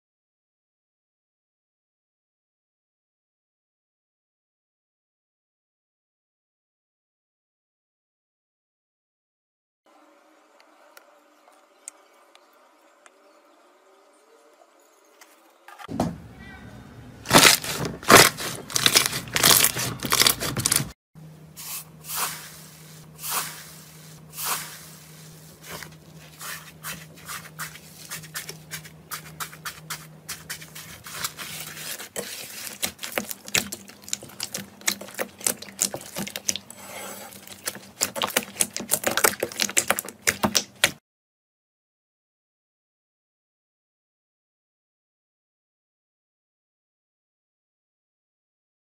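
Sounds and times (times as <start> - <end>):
slime squishing and crackling: 17.3 - 21.0, 25.6 - 41.0.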